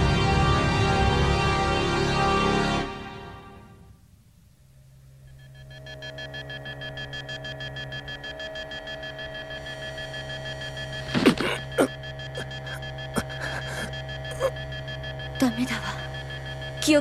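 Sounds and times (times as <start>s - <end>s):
low electronic hum: 0.0s - 17.0s
rapidly pulsing electronic tone: 5.2s - 17.0s.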